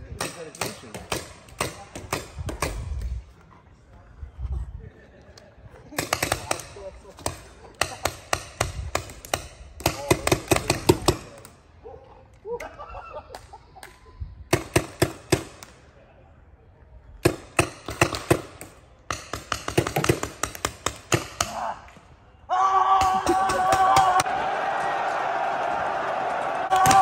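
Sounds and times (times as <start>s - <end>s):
paintball markers firing: 6.0s - 11.6s, 17.2s - 21.7s
distant shouting: 21.4s - 27.0s.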